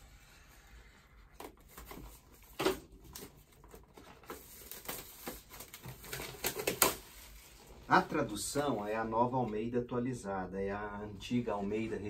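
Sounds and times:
plastic wrapping crinkling and tearing: 1.4s - 8.0s.

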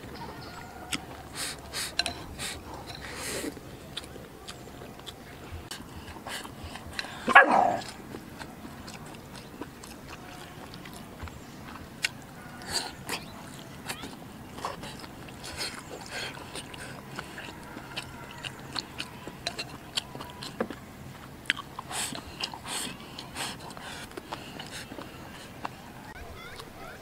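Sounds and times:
chewing: 0.0s - 26.8s
dog bark: 7.3s - 7.9s.

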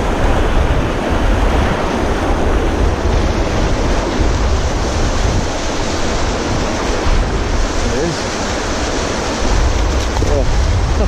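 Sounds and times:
river rushing over rocks: 0.0s - 11.0s
wind buffeting microphone: 0.0s - 11.0s.

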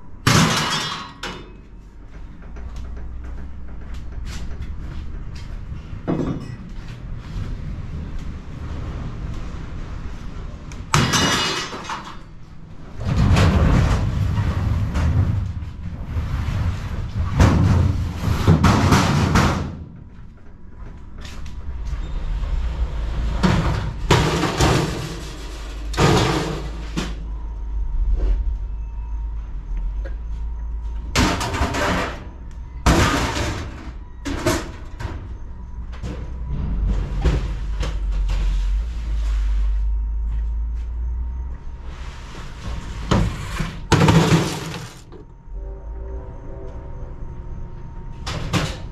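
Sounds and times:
metal cabinets crashing down: 0.2s - 1.5s, 10.9s - 12.2s, 12.9s - 20.0s, 23.2s - 27.2s, 31.2s - 34.8s, 43.1s - 45.1s
metal cabinets scraping: 12.8s - 20.0s, 21.2s - 27.2s, 42.2s - 45.2s.

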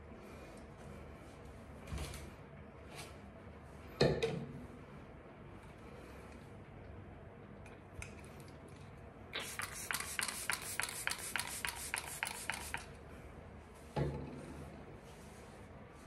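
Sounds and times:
spray bottle hissing puffs: 9.4s - 12.9s.

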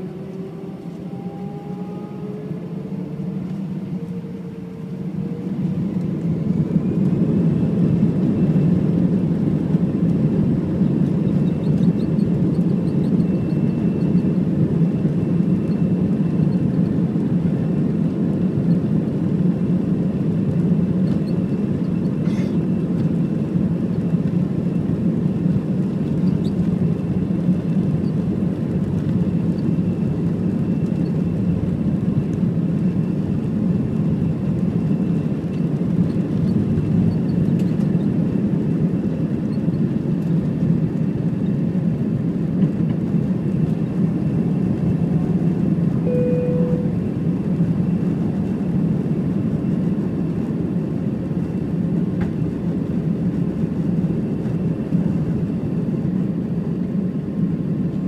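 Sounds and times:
faint high whine: 0.0s - 7.1s, 46.0s - 47.3s
jet engines roaring: 0.0s - 58.0s.

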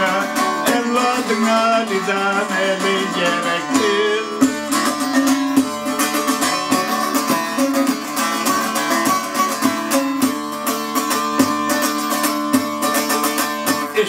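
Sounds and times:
long-necked lute strummed: 0.0s - 14.0s.

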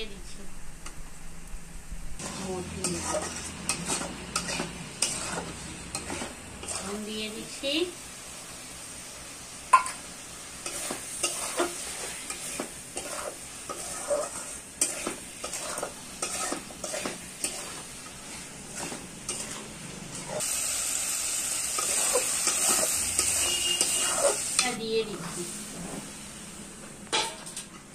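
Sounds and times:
masala sizzling: 0.0s - 27.9s
metal spoon scraping pan: 2.7s - 7.2s, 10.6s - 20.5s, 21.7s - 25.4s.

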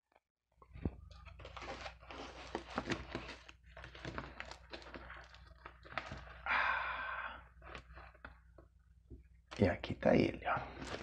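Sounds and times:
plastic bag rustling and crinkling: 1.0s - 6.4s, 10.7s - 11.0s.

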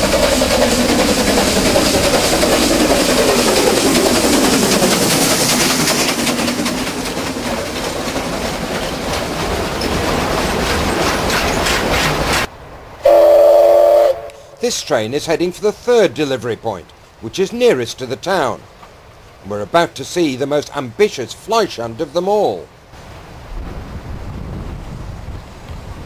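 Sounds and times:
wagon wheels clicking over rail joints: 0.0s - 12.5s
steam locomotive hissing: 0.0s - 16.2s
loud steam whistle: 13.0s - 14.6s.

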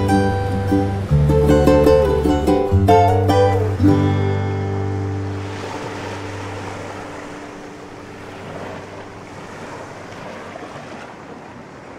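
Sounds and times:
acoustic guitar chord: 0.0s - 9.2s
ocean surf washing: 0.0s - 11.9s.

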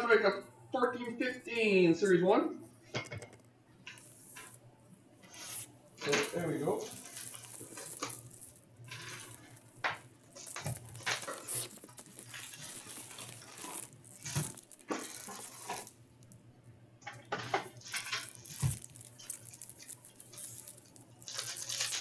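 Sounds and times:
foil packs rustling and crinkling: 5.3s - 16.3s, 17.1s - 22.0s.

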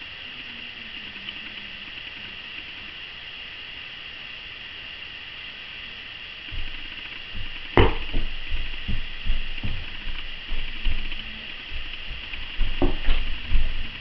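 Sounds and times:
camera hiss: 0.0s - 14.0s
child's feet stamping on rug: 6.5s - 14.0s
sharp knock: 7.4s - 9.0s.

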